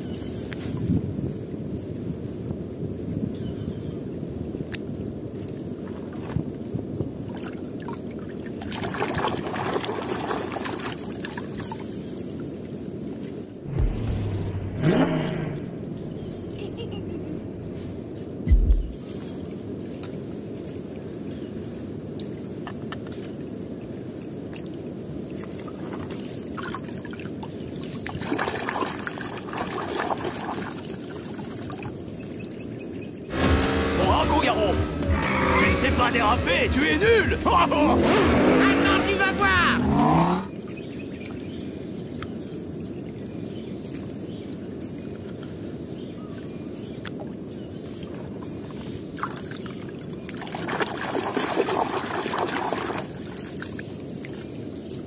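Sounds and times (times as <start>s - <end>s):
water sloshing and splashing: 5.4s - 15.4s, 24.5s - 32.6s, 47.0s - 54.8s
hand splashing in muddy water: 8.5s - 11.7s, 28.1s - 31.9s, 49.2s - 53.9s
steady low rumble: 13.7s - 19.0s, 33.3s - 38.4s.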